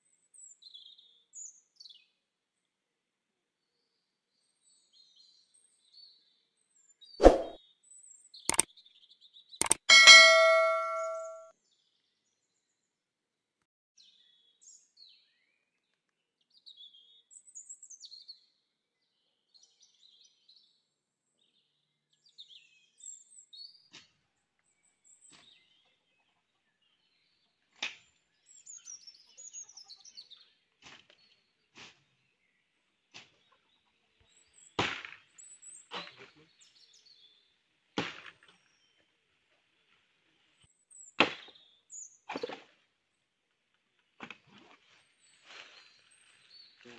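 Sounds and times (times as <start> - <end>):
bell-like chime: 9.6 - 11.5.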